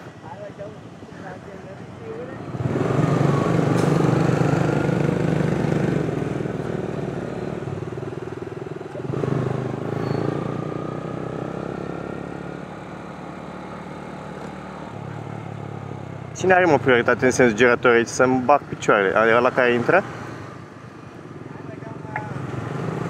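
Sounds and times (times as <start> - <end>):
motorcycle engine accelerating: 2.4 - 17.6, 22.2 - 23.0.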